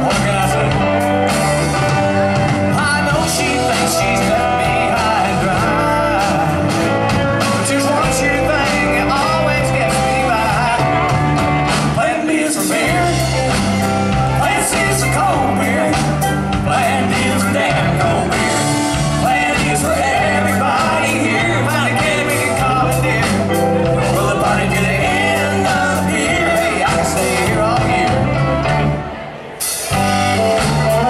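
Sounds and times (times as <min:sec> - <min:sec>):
man singing lead vocals: 0:00.0 - 0:29.0
drum kit: 0:00.0 - 0:31.0
electric guitars: 0:00.0 - 0:31.0.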